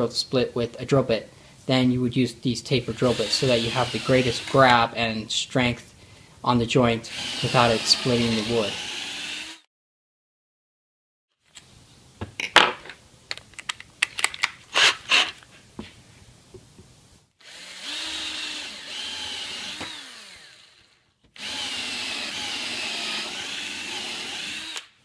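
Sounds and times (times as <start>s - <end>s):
cordless drill driving a screw: 2.9s - 4.8s, 7.1s - 9.7s, 17.4s - 25.0s
tools clicking and knocking: 12.4s - 14.6s.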